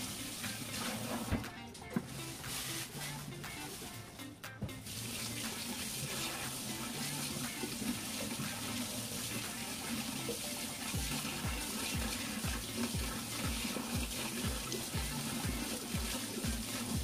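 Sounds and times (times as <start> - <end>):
background music with beat: 0.0 - 17.0
tap water running into sink: 0.0 - 17.0.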